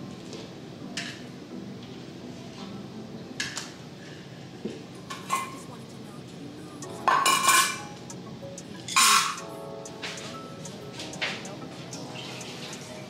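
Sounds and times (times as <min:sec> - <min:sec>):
metal dog bowls clinking: 0:07.1 - 0:07.8.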